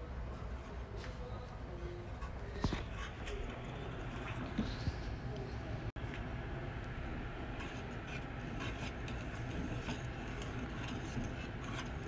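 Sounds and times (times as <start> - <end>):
steady low hum: 0.0 - 12.0
utensil scraping a saucepan: 2.2 - 5.0, 7.5 - 12.0.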